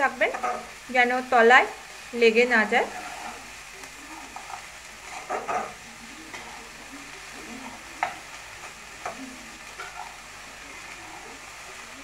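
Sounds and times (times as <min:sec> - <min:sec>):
metal spatula scraping a pan: 0:00.0 - 0:00.8, 0:02.4 - 0:03.6, 0:04.2 - 0:06.7, 0:07.3 - 0:11.4
frying sizzle: 0:00.0 - 0:12.0.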